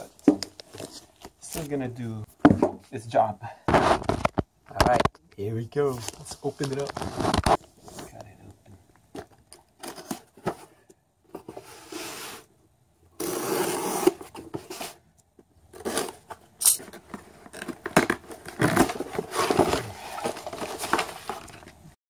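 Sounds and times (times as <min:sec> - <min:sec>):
cardboard and paper rustling: 0:05.9 - 0:08.3, 0:09.1 - 0:12.4, 0:15.7 - 0:22.0.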